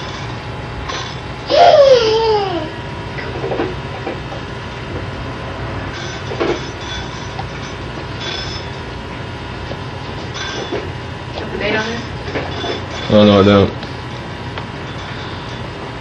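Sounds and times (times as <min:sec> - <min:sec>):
steady hum and hiss: 0:00.0 - 0:16.0
small child squealing: 0:01.5 - 0:02.8.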